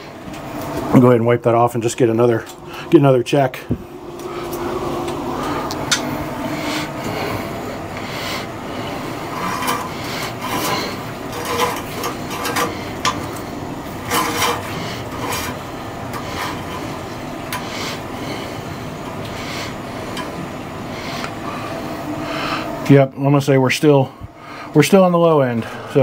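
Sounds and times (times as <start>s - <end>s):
steady background hum: 0.0s - 26.0s
dipstick scraping in its tube: 9.2s - 13.2s, 14.0s - 15.6s.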